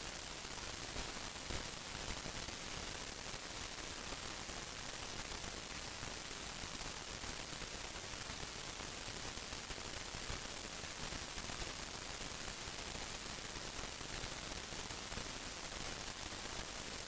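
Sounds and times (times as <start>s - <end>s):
microphone hiss: 0.0s - 17.0s.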